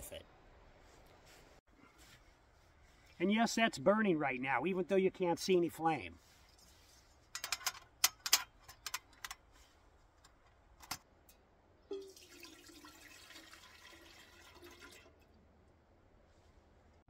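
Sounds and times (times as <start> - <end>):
water pouring into pot: 11.9 - 15.2.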